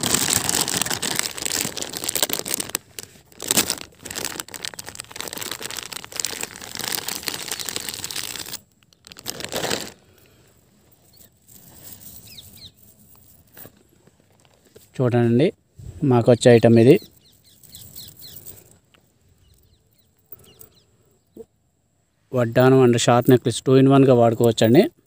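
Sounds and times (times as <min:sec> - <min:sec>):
plastic wrapping crinkling: 0:00.0 - 0:10.2.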